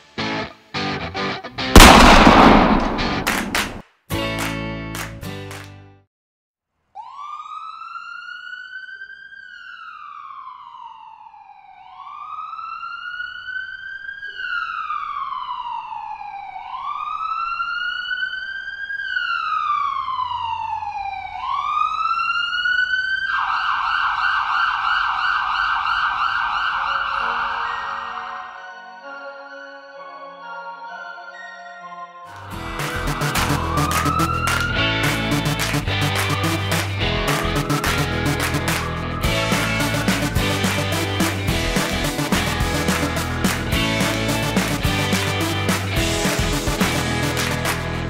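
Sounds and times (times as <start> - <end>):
emergency vehicle siren wailing: 7.0 - 31.3, 32.4 - 48.0.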